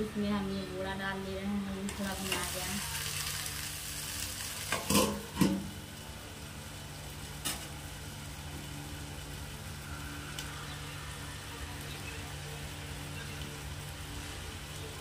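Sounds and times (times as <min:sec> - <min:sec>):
steady low hum: 0:00.0 - 0:15.0
steel lid clanking on pan: 0:04.7 - 0:05.7.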